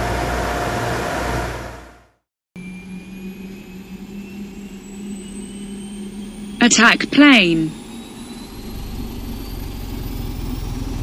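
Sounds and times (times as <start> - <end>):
jet engine with rising whine: 2.6 - 6.6, 7.7 - 11.0.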